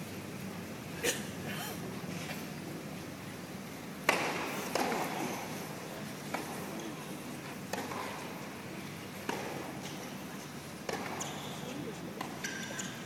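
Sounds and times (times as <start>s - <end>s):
tennis ball struck by rackets: 4.0s - 5.5s, 6.3s - 6.6s, 7.6s - 8.4s, 9.2s - 10.0s, 10.8s - 11.4s
crowd murmur: 4.4s - 13.0s.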